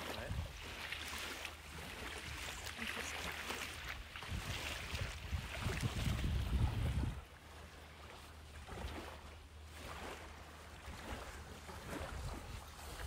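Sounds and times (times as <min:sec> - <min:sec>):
wind rumbling on microphone: 0:00.0 - 0:00.9, 0:03.7 - 0:07.5, 0:10.8 - 0:13.0
small waves washing onto shore: 0:00.0 - 0:13.0.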